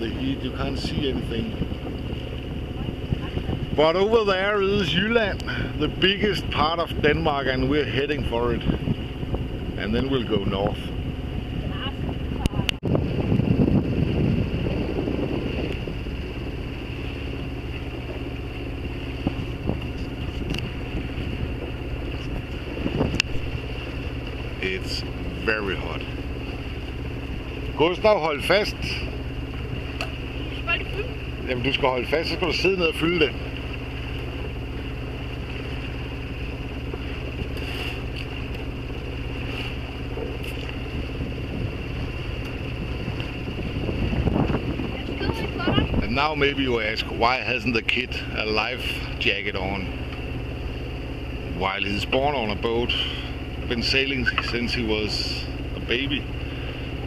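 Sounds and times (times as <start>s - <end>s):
boat engine running: 0.0s - 57.0s.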